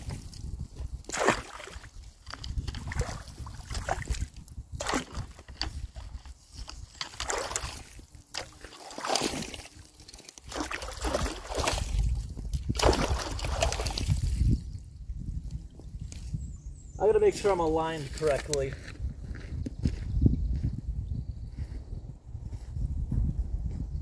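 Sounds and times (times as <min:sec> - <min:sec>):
shallow water sloshing and splashing: 0:00.0 - 0:14.6.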